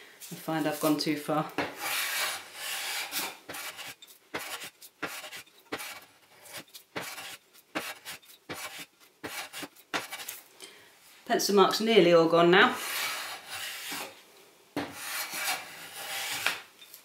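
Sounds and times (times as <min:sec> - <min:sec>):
hand plane shaving wood: 0:01.8 - 0:10.4, 0:15.0 - 0:16.6.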